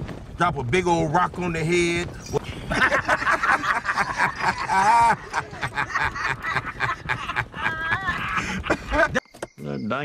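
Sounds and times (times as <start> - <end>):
man laughing: 2.3 - 9.2.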